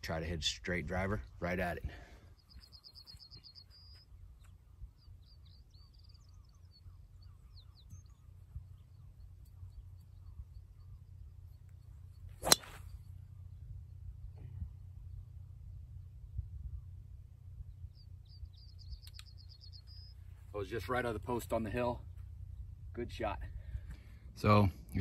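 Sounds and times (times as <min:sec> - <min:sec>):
bird trilling and chirping: 0:05.0 - 0:11.0
steady low rumble: 0:08.2 - 0:20.4
golf club striking ball: 0:12.4 - 0:12.9.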